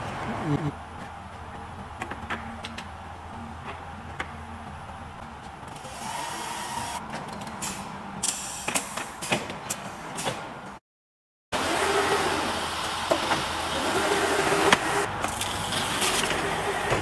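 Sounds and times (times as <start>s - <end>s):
machine humming: 0.2s - 7.0s
hiss: 7.6s - 9.0s.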